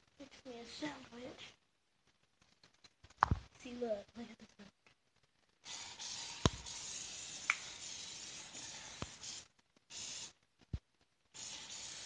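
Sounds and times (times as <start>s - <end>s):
hiss: 5.6s - 10.4s, 11.3s - 12.0s.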